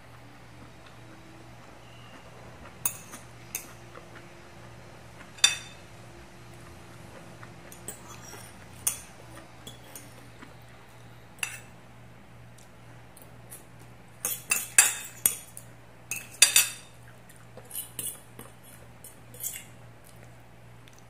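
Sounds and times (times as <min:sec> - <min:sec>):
cutlery clinking on ceramic plates: 0:02.8 - 0:03.7, 0:05.3 - 0:05.8, 0:11.4 - 0:11.7, 0:14.2 - 0:17.0.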